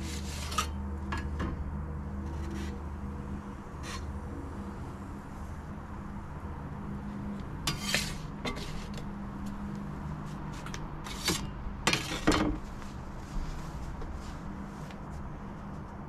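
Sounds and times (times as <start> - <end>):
pizza peel scraping stone: 0.0 - 0.8, 7.7 - 9.0.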